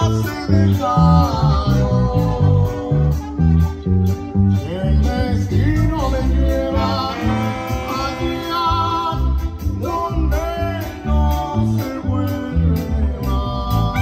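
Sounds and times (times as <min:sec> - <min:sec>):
pulsing bass line: 0:00.0 - 0:14.0
clarinets playing melody: 0:06.7 - 0:09.0.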